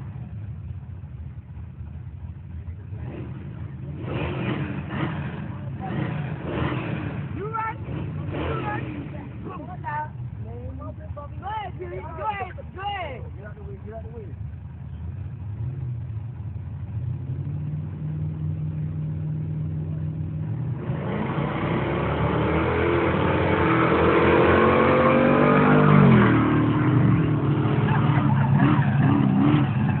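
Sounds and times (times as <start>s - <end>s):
car engine running low: 0.0s - 30.0s
race car accelerating past: 20.5s - 30.0s.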